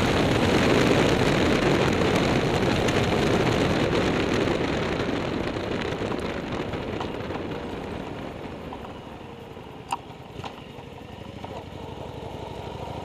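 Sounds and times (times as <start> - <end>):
wind on microphone: 0.0 - 9.2
tyre noise on wet asphalt: 0.0 - 13.0.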